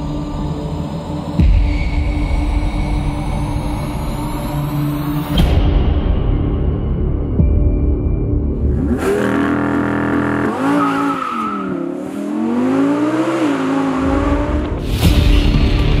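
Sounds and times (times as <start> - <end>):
background music: 0.0 - 16.0
car engine revving and accelerating: 8.6 - 15.1.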